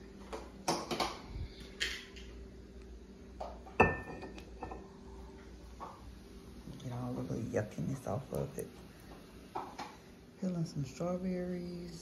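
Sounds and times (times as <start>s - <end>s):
dishes and utensils clattering: 3.7s - 4.8s.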